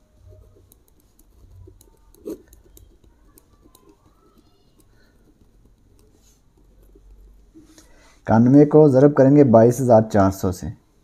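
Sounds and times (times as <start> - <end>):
pen scratching on paper: 0.1 - 7.8.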